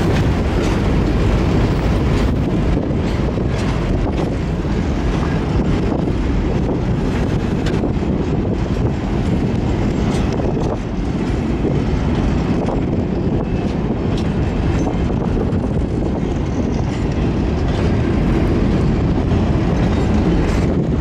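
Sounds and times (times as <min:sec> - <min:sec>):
train wheels rumbling on rails: 0:00.0 - 0:21.0
wheels clicking over rail joints: 0:00.0 - 0:21.0.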